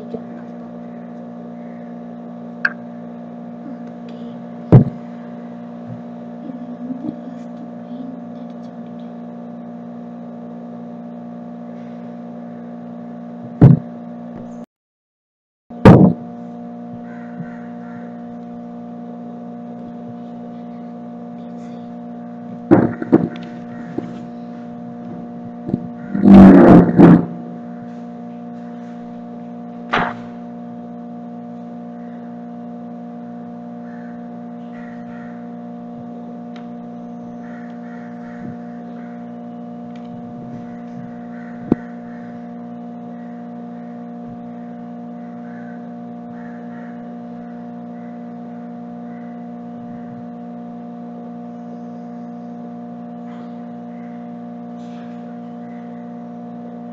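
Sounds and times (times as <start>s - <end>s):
steady hum of fixed tones: 0.0s - 14.7s, 15.7s - 56.9s
knocking and bumping: 4.7s - 5.0s, 22.7s - 23.4s
thump: 4.7s - 5.0s, 13.6s - 13.8s, 15.8s - 16.2s, 29.9s - 30.4s.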